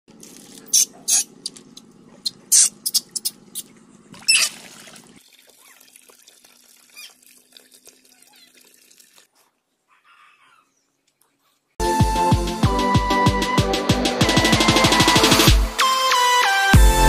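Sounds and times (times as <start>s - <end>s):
water pouring into a tub: 4.2s - 9.3s
water splashing: 4.2s - 9.3s.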